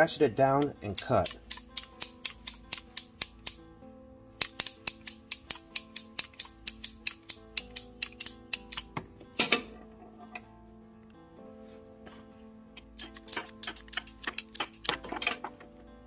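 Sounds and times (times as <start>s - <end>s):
ratchet cable cutter clicking: 0.9s - 3.6s, 4.4s - 8.9s, 12.9s - 15.1s
cable snapping: 4.4s - 10.5s, 12.8s - 15.6s.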